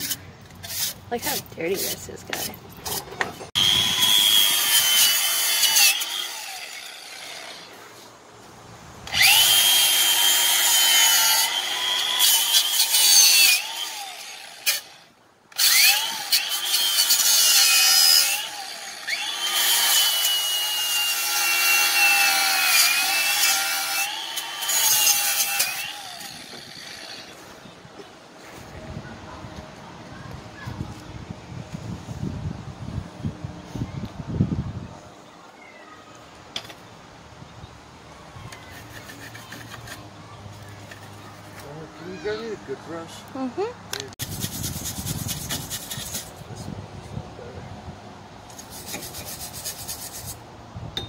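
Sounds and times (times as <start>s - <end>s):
power tool scouring rust off metal: 3.5s - 7.7s, 9.1s - 15.0s, 15.6s - 27.3s.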